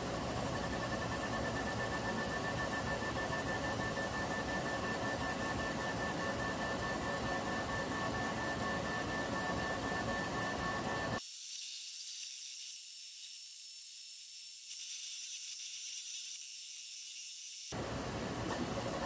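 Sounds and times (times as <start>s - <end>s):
machine noise: 0.0s - 12.7s
printer motors whining: 0.0s - 19.0s.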